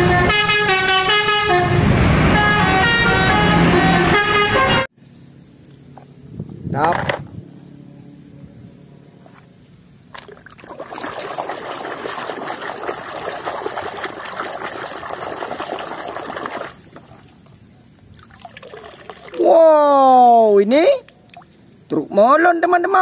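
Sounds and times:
hand splashing water in a basin: 10.1s - 17.4s.

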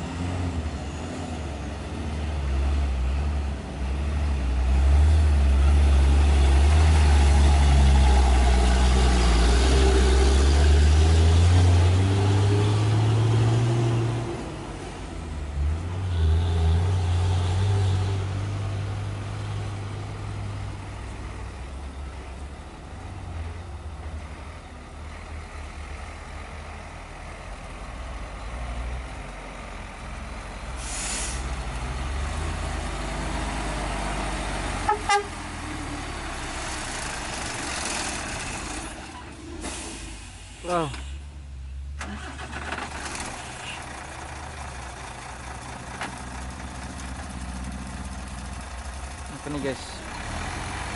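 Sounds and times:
diesel dump truck engines: 0.0s - 50.9s
brief hiss: 30.8s - 31.6s, 39.6s - 41.3s
short horn toots: 34.9s - 35.4s.

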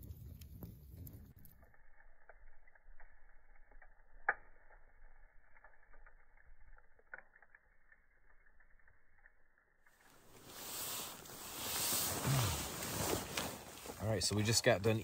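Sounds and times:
faint clicks and crackles: 0.0s - 15.0s
low hiss: 10.1s - 15.0s.

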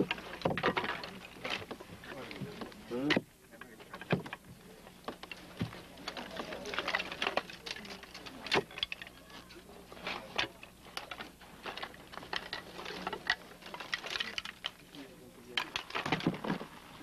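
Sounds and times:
faint steady hum: 0.0s - 17.0s
bones clicking and scraping: 5.0s - 17.0s.

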